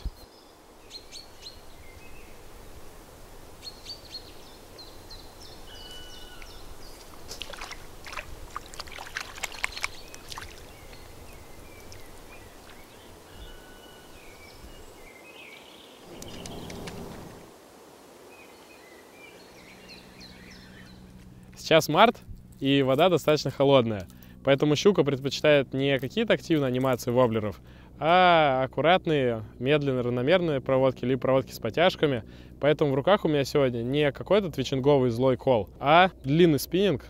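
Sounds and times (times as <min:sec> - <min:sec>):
small birds whistling: 0:03.6 - 0:07.1, 0:09.5 - 0:17.4, 0:18.4 - 0:21.1
water splashing: 0:06.3 - 0:13.3.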